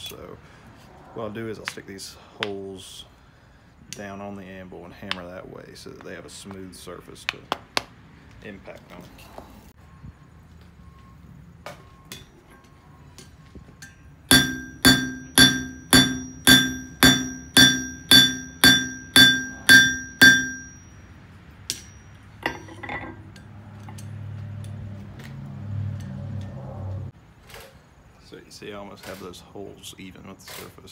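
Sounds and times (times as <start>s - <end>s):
hammer striking metal on anvil: 13.8s - 24.2s
light metal clinks: 21.7s - 24.8s.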